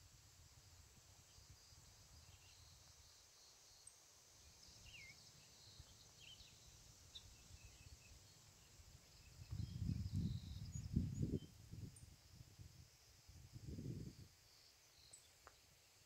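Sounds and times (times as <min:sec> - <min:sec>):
bird chirps: 0:03.8 - 0:11.5
wind rumble on microphone: 0:04.8 - 0:14.4.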